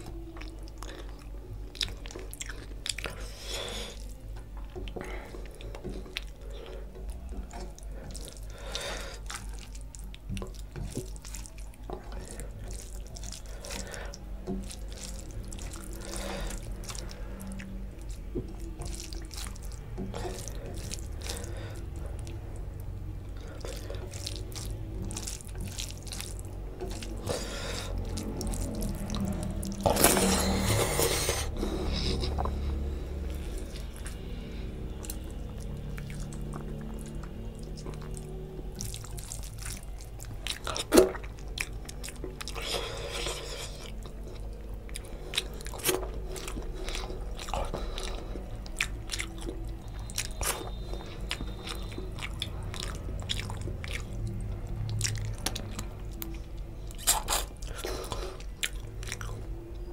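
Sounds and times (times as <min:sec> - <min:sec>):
fingers squishing rice: 0:00.0 - 0:34.3
chewing and mouth sounds: 0:00.0 - 0:59.9.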